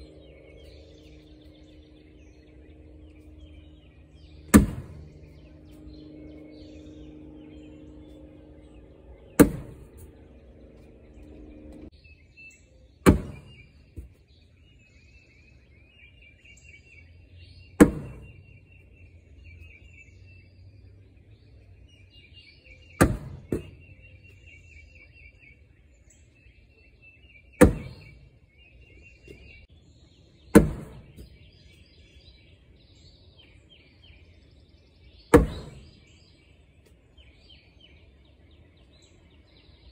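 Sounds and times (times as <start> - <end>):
steady hum: 0.0 - 11.9, 22.9 - 24.5
birds chirping: 0.0 - 39.9.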